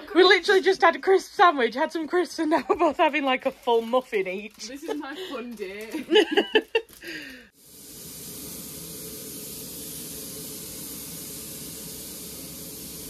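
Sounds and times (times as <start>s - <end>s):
steam hissing from locomotive: 7.2s - 13.0s.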